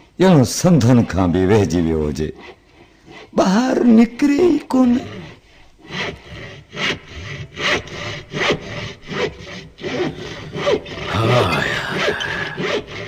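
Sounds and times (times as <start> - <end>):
rhythmic rasping strokes: 5.0 - 13.0.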